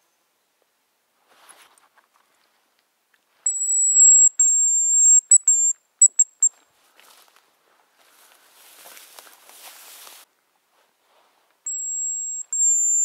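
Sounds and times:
decoy whistle blowing high notes: 3.5 - 6.5, 11.7 - 13.0.

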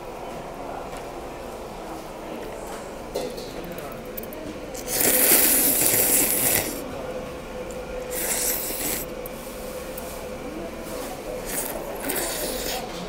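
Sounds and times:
noodles being slurped: 4.8 - 6.8, 8.1 - 9.2, 11.0 - 13.0.

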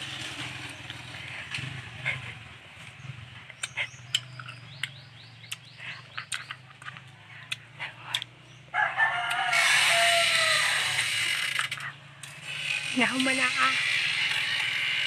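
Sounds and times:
rooster crowing: 8.7 - 11.2.

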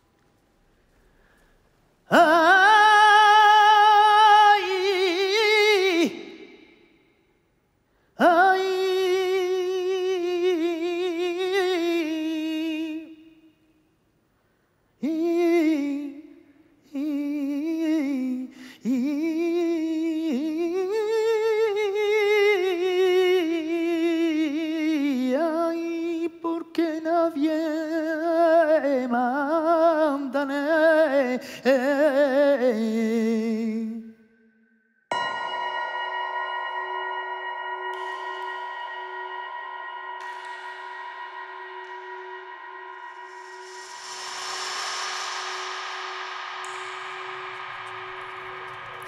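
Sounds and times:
person singing wordless melody: 2.1 - 6.8, 8.1 - 13.7, 15.0 - 34.4.

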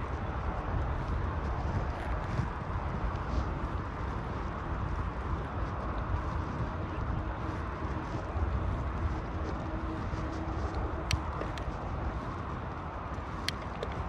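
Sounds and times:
bicycle tyre noise: 0.0 - 14.0
wind on microphone: 0.0 - 14.0.

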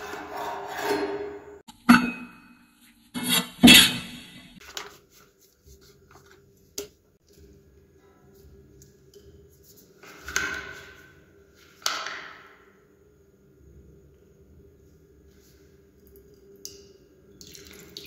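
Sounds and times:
soft handling sounds: 4.6 - 8.6.

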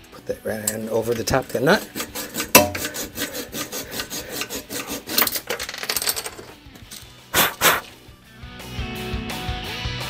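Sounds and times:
saw rasping through metal bolt: 0.6 - 6.5.

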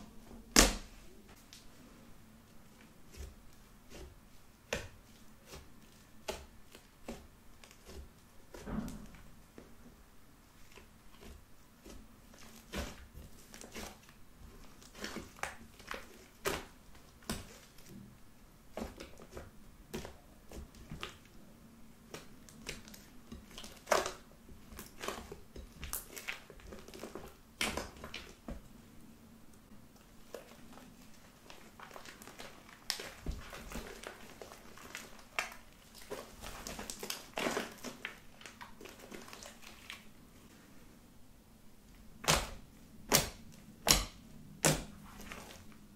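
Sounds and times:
slime squelching and popping: 30.2 - 40.1, 42.2 - 45.6.

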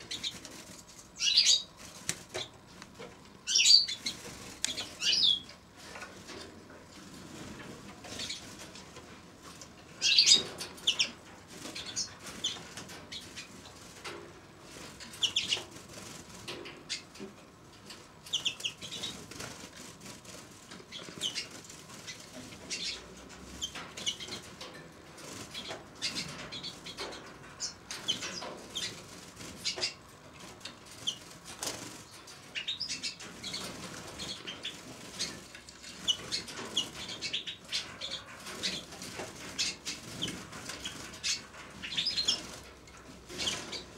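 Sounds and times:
wings fluttering: 0.0 - 17.2, 18.2 - 43.9
finches chirping: 1.2 - 1.7, 3.4 - 5.5, 10.0 - 13.5, 15.2 - 15.6, 18.3 - 19.2, 20.9 - 24.5, 25.5 - 29.0, 29.6 - 30.0, 32.5 - 42.6.

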